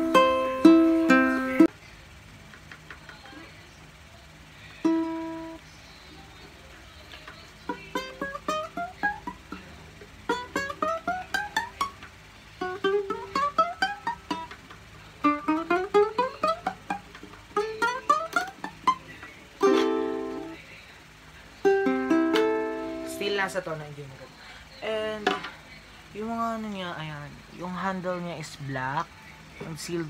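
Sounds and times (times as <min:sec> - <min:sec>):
ukulele plucked runs: 0:00.0 - 0:01.7, 0:07.6 - 0:20.6, 0:21.7 - 0:23.5
ukulele strummed chord: 0:00.0 - 0:01.7.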